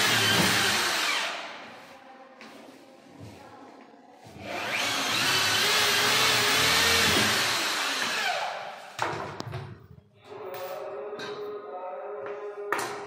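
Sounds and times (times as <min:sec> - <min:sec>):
electric drill motor whine: 0:04.6 - 0:08.4.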